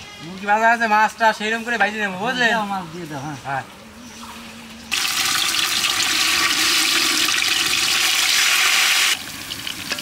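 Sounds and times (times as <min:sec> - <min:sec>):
fish sizzling in hot oil: 0:04.9 - 0:10.0.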